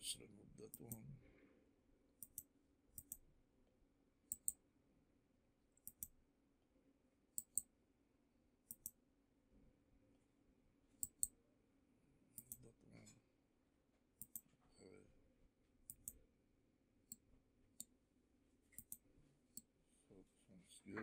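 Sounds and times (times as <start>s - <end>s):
mouse buttons clicking: 2.2s - 3.2s, 4.3s - 4.6s, 5.8s - 6.2s, 7.4s - 7.7s, 8.7s - 9.0s, 11.0s - 11.3s, 12.4s - 12.6s, 14.2s - 14.5s, 15.9s - 16.2s, 18.7s - 19.0s.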